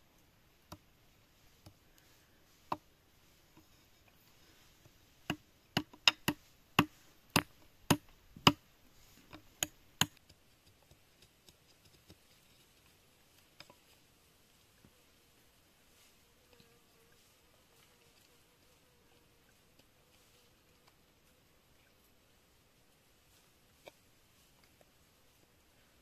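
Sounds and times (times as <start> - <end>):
knife chopping bamboo: 5.2 - 8.6
faint ticks: 17.8 - 20.0.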